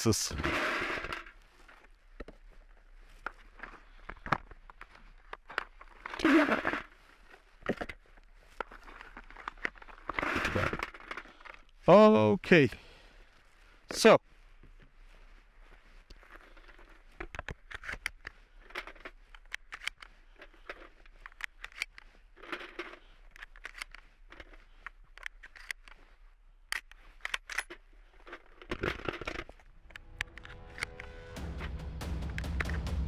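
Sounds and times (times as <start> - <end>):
gun handling noise: 0.1 - 11.8, 14.6 - 33.0
shotgun shells clicking into magazine: 17.3 - 26.0, 26.7 - 31.0.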